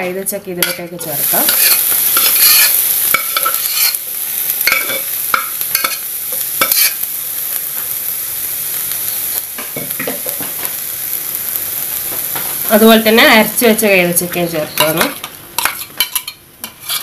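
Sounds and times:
pineapple sizzling in a pan: 0.0 - 17.0
metal spoon scraping a pan: 0.6 - 4.0, 4.6 - 7.1, 14.8 - 17.0.

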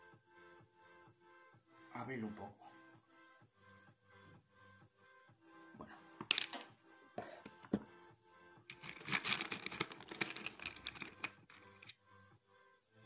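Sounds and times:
faint background music: 0.0 - 13.0
rummaging through fishing tackle: 6.2 - 6.7, 8.7 - 11.9.

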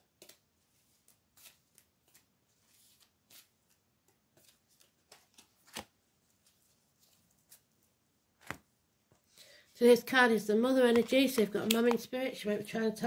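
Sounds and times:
cards shuffling: 4.4 - 7.7.

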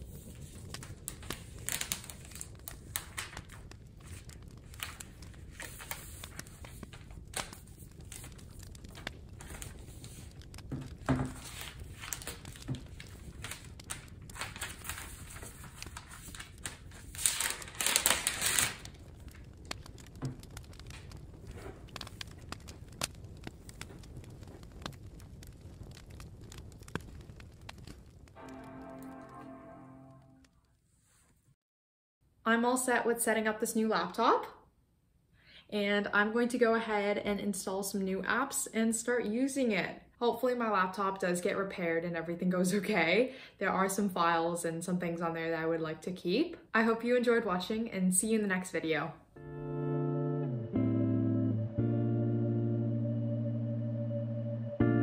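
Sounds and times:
plastic film crinkling: 0.0 - 29.3.

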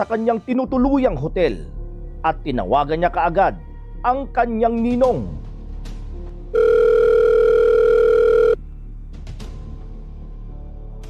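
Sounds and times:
telephone ringback tone: 6.6 - 8.6.

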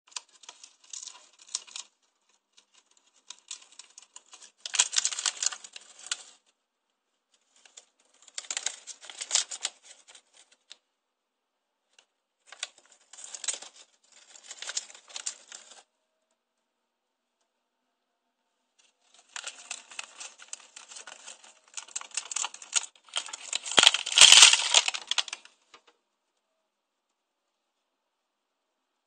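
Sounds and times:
paper bag crinkling and rustling: 2.6 - 6.3, 7.6 - 10.4, 12.5 - 15.8, 19.1 - 25.5.

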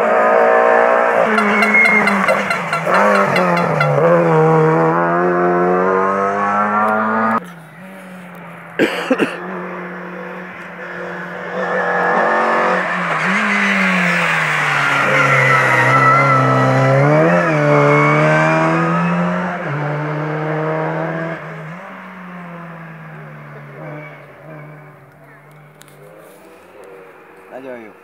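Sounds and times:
rally car engine passing: 0.0 - 28.0.

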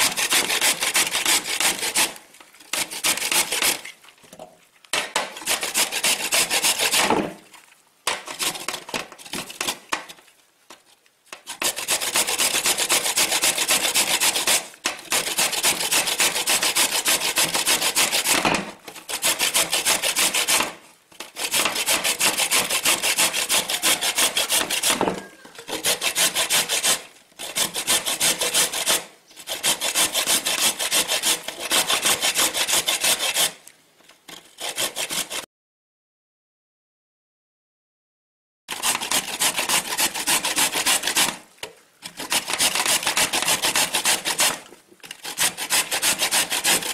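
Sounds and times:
carrots grated on metal grater: 21.2 - 33.4, 42.1 - 46.9.

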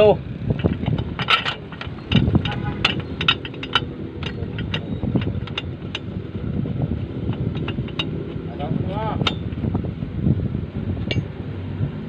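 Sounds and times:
backhoe engine running: 0.0 - 12.0
clicks and rattles: 0.5 - 9.8.

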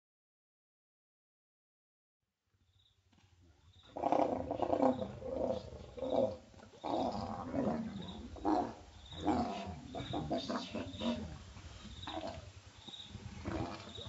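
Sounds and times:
leopards growling: 3.5 - 14.0.

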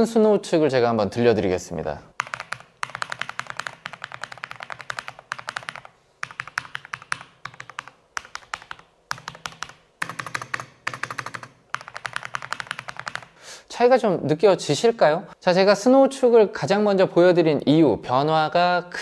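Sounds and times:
typing on a mechanical keyboard: 2.2 - 13.4.

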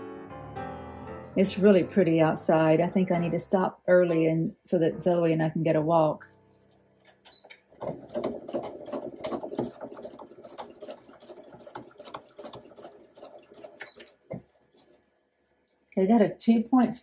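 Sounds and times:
sewing machine stitching: 7.3 - 15.1.

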